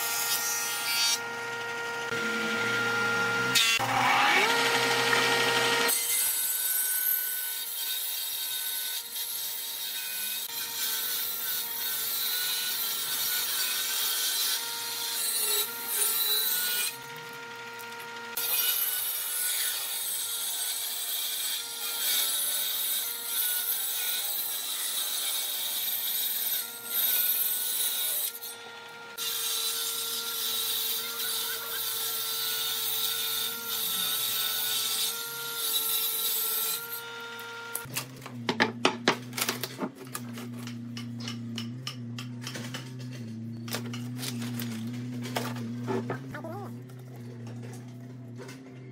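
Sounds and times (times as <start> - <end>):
saw rasping through wood: 0.0 - 37.9, 44.3 - 46.8
table saw blade whine: 0.0 - 48.9.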